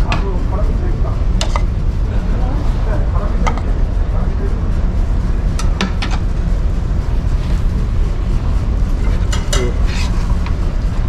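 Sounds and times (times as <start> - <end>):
ship engines droning: 0.0 - 11.0
tableware clinking: 9.1 - 10.2.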